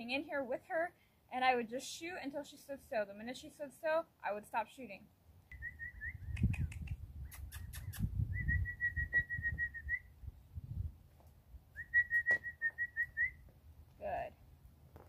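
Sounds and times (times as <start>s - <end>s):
person whistling: 8.4s - 10.1s, 11.8s - 13.4s.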